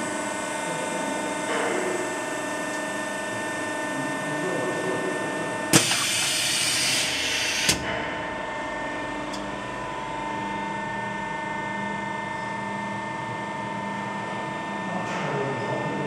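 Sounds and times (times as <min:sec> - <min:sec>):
steady machine hum: 0:00.0 - 0:14.9
compressed air hiss: 0:05.8 - 0:07.8.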